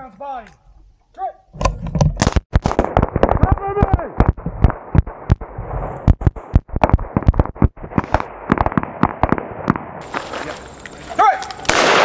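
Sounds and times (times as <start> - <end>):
rifle gunfire: 2.5 - 5.5, 6.2 - 9.9, 11.7 - 12.0.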